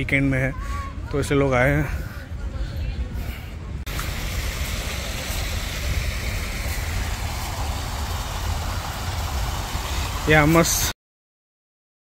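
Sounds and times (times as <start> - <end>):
constant low rumble: 0.0 - 10.9
water rushing along tiled channel: 3.9 - 11.0.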